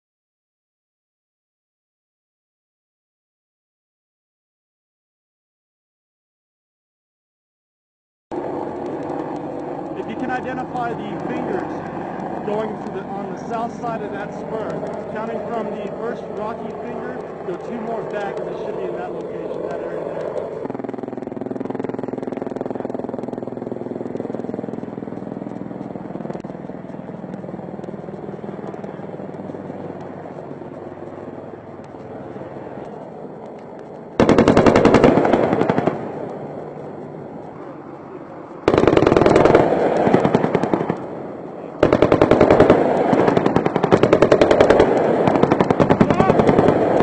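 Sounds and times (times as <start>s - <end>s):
helicopter drone: 8.3s - 47.0s
rapid automatic gunfire: 34.2s - 36.2s, 38.6s - 41.0s, 41.8s - 47.0s.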